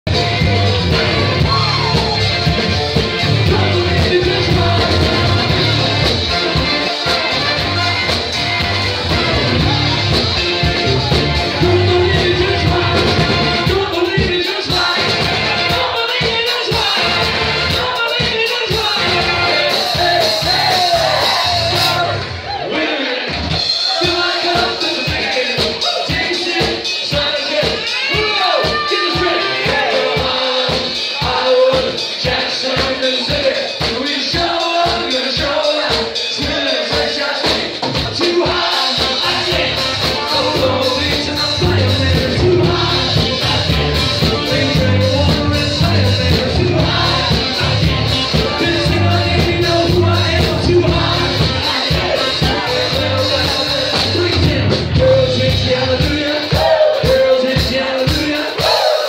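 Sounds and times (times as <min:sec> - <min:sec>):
heavy bass: 0:00.0 - 0:22.6, 0:36.4 - 0:58.8
drum beat: 0:00.1 - 0:22.4, 0:23.2 - 0:59.0
live funk-pop band: 0:00.1 - 0:59.0
person singing: 0:00.7 - 0:07.9, 0:09.0 - 0:22.2, 0:23.8 - 0:59.0.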